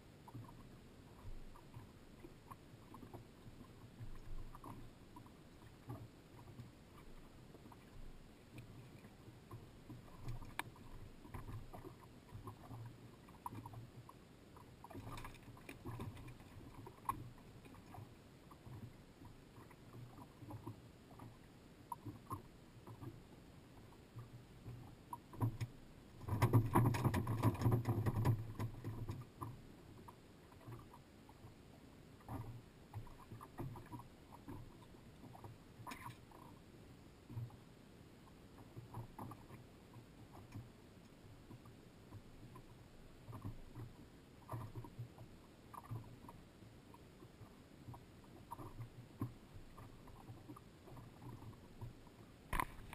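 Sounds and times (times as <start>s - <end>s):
water lapping against hull: 0.0s - 52.9s
knocks and clatter on boat deck: 25.4s - 29.2s.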